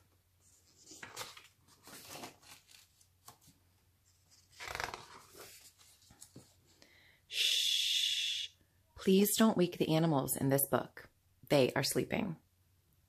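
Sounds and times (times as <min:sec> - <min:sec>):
book page turning: 0:00.4 - 0:06.7.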